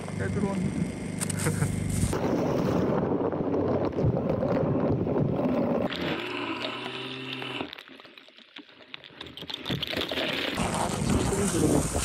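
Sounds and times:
steady hum with hiss: 0.0s - 2.2s
steady motor tone: 0.0s - 3.9s, 4.6s - 7.9s.

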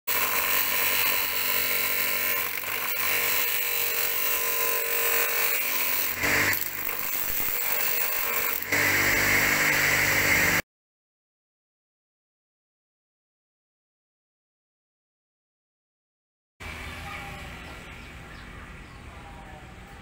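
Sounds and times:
disc sander grinding metal: 0.1s - 10.6s.

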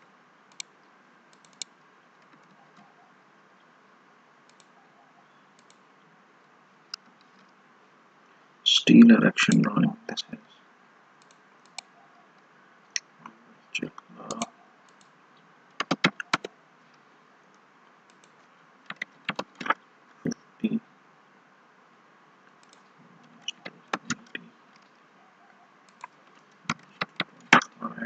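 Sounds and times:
mouse and keyboard clicks: 11.2s - 11.9s, 15.8s - 16.5s, 18.1s - 19.8s, 22.6s - 24.4s, 25.9s - 27.7s.

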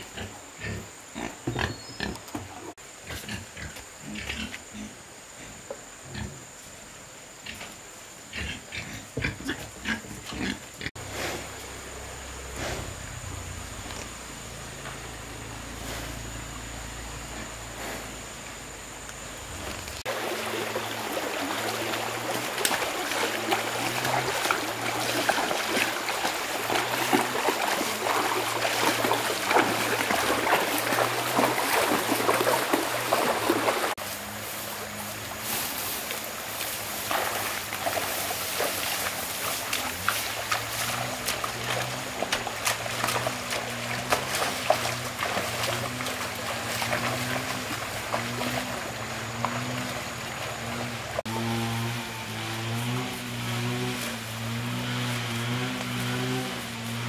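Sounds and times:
stream running over rocks: 9.7s - 57.0s
splashing while wading: 19.9s - 57.0s.

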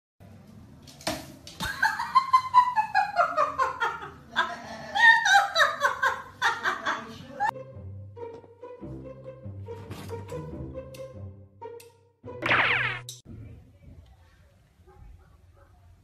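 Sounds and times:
faint music: 13.2s - 16.0s.

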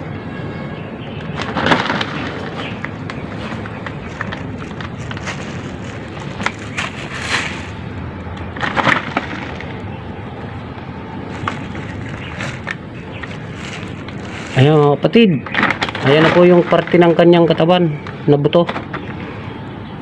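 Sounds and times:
hand scraping soil and debris: 1.4s - 7.8s, 11.2s - 14.8s.

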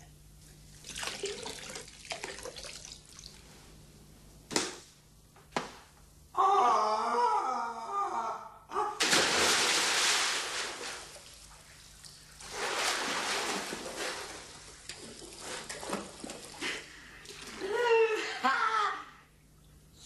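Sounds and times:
person diving into pool: 9.0s - 11.5s, 12.3s - 17.7s
swimming splashes: 9.0s - 17.7s.

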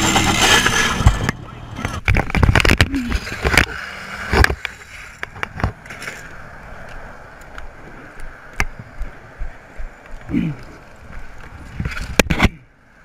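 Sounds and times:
motorcycle scraping along asphalt: 0.0s - 6.9s
wind and road noise: 0.0s - 13.0s.

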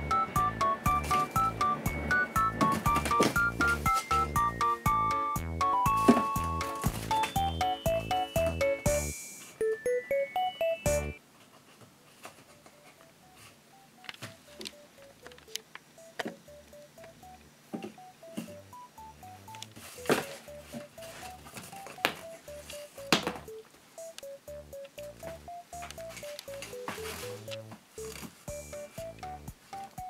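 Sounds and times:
beeping melody music: 0.0s - 11.2s, 13.0s - 30.0s.

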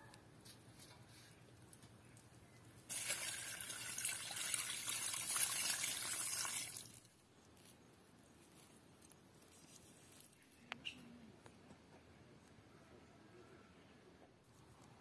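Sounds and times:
water splashing on earth and leaves: 2.9s - 7.2s.

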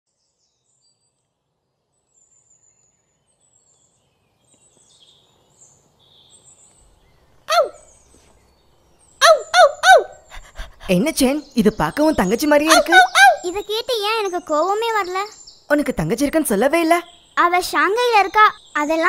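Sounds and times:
faint bird chirping: 0.1s - 19.0s
cartoon dog whimpering: 7.5s - 7.8s, 9.2s - 10.9s, 12.7s - 13.6s.

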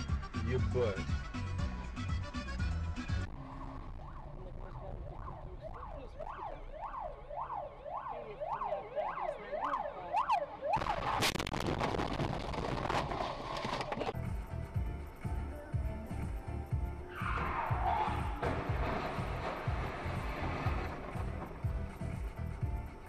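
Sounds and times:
ambulance siren yelping: 3.5s - 11.2s
loud crash with bang: 17.7s - 21.5s.

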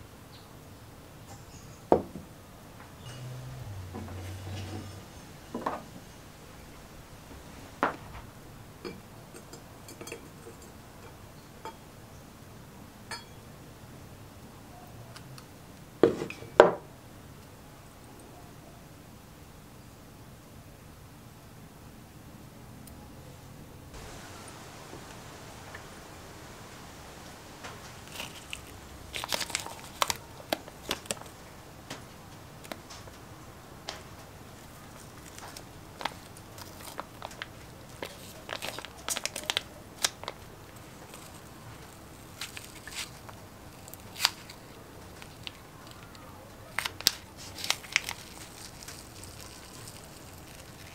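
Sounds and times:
masking tape crinkling: 24.0s - 33.2s, 33.9s - 50.9s.

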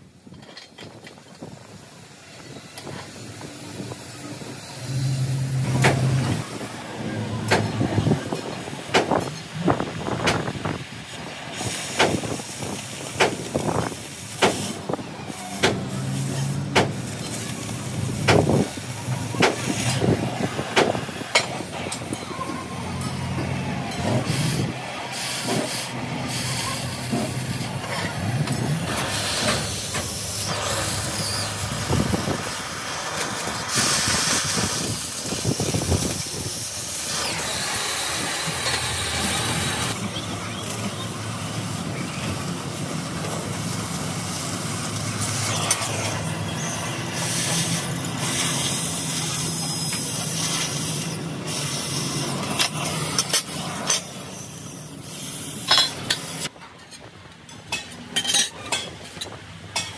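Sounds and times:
steady hiss: 24.2s - 56.5s.

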